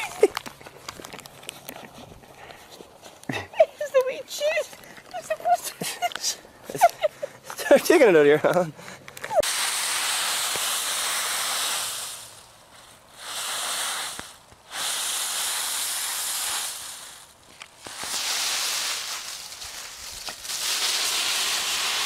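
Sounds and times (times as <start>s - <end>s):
dry leaves rustling and crunching: 11.7s - 22.0s.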